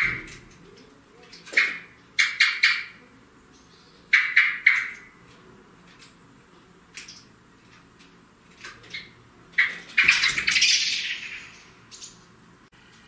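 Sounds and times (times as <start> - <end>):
blackbird calling: 0.0 - 5.2, 8.8 - 12.3.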